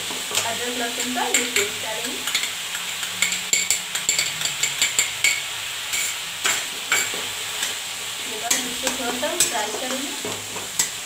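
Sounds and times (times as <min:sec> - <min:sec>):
hot oil sizzling: 0:00.0 - 0:11.0
stirring scrapes in pan: 0:02.2 - 0:11.0.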